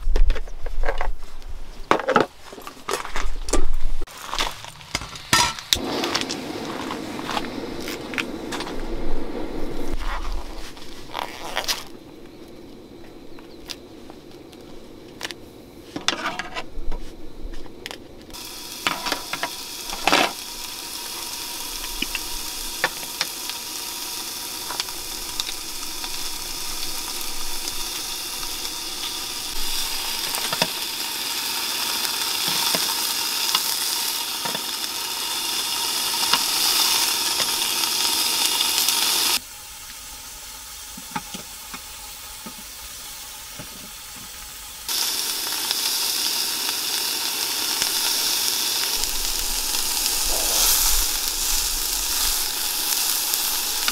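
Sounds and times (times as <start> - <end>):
beef sizzling in frying pan: 18.3 - 53.9.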